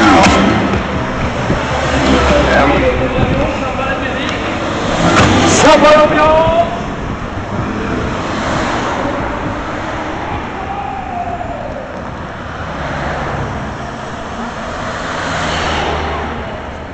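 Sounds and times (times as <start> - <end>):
vehicles driving past: 0.0 - 16.9.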